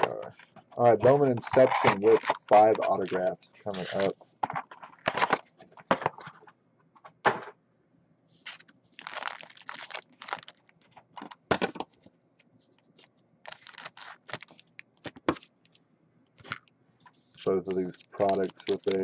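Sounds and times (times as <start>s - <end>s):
foil wrapper crinkling: 1.3s - 4.1s, 8.5s - 10.8s, 13.4s - 15.8s, 17.4s - 19.0s
scissors cutting wrapper: 13.5s - 14.7s, 17.7s - 19.0s.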